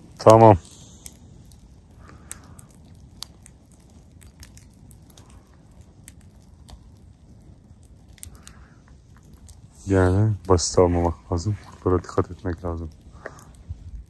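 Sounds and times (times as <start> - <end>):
campfire crackling: 0.0 - 14.0.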